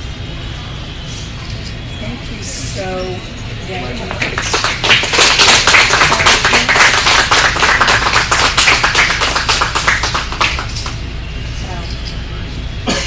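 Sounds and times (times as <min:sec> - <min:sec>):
people applauding: 0:04.0 - 0:11.1.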